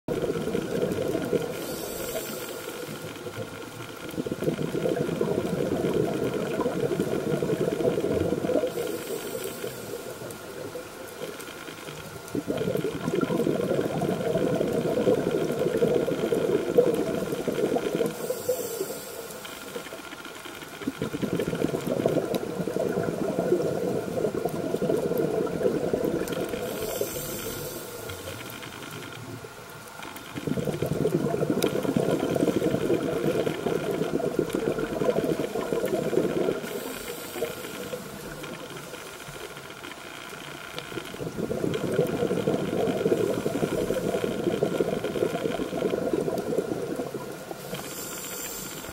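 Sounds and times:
regulator inhalation hiss: 1.5 - 3.1, 8.7 - 10.3, 18.1 - 20.0, 26.5 - 28.6, 36.6 - 38.4, 47.5 - 48.9
bubbling exhalation: 12.3 - 18.1, 20.8 - 27.3, 30.4 - 36.9, 41.2 - 47.6.

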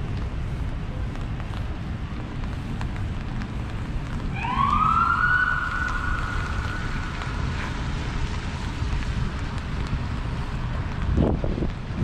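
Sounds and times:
low rumble of street noise: 0.0 - 12.0
siren: 4.3 - 7.7.

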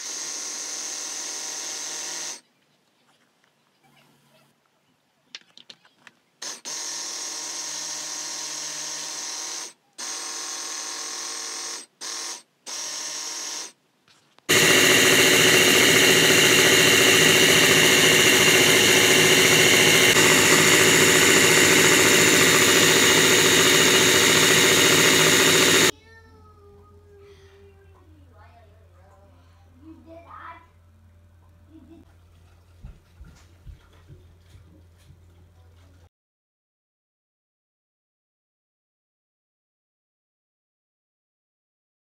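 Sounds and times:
spice grinder motor: 0.0 - 2.4, 6.4 - 13.8, 14.5 - 25.9.

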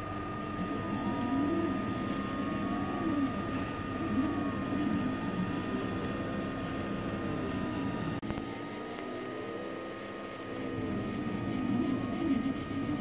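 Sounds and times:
high-pitched fan hum: 0.0 - 13.0
printer motors whining: 0.0 - 13.0.

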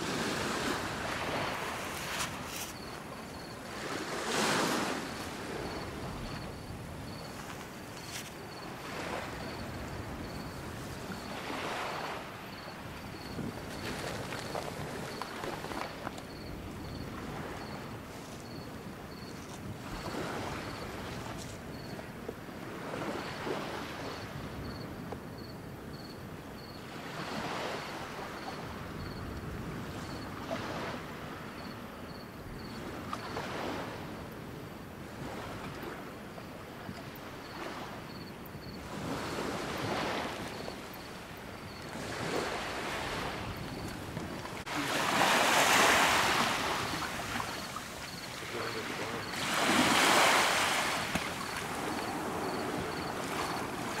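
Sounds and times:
rush of water: 0.0 - 16.4, 39.2 - 54.0
water sloshing and splashing: 13.4 - 16.3, 41.8 - 54.0.

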